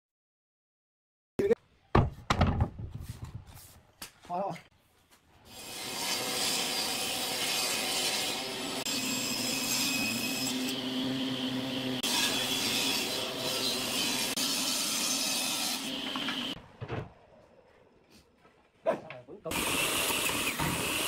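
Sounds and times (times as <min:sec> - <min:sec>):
table saw cutting wood: 0:05.5 - 0:16.6, 0:19.5 - 0:21.0
saw motor humming: 0:05.6 - 0:16.6.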